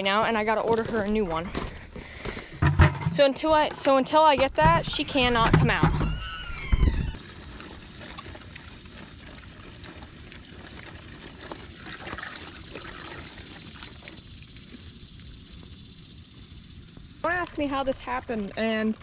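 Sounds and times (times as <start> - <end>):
water running from a hose: 6.0 - 19.0.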